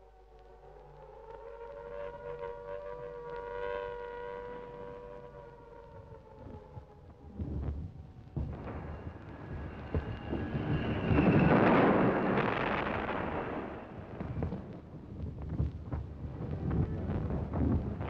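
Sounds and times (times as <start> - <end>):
deep rumbling: 7.2 - 18.0.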